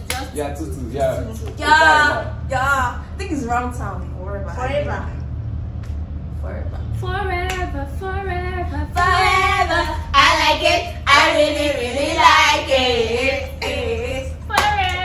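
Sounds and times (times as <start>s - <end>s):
unaccompanied group singing: 7.0s - 15.0s.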